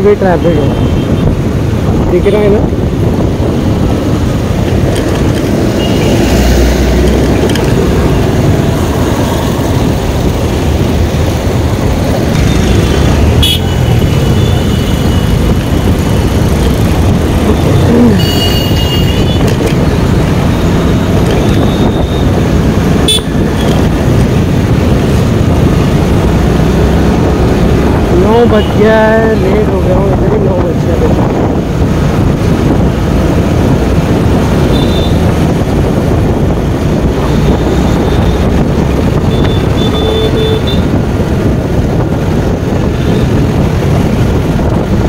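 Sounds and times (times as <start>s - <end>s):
motorcycle engine and road noise: 0.0s - 45.0s
vehicle horns tooting: 13.4s - 15.4s, 18.1s - 19.5s, 23.0s - 23.8s, 34.6s - 35.2s, 39.2s - 40.9s.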